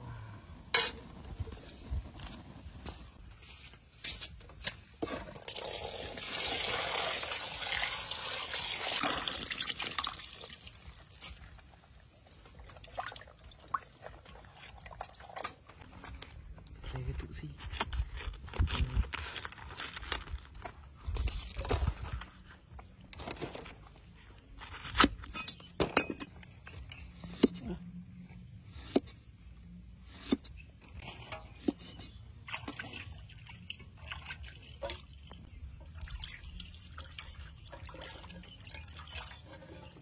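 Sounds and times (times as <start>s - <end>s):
small splashes and drips in water: 32.4s - 39.5s.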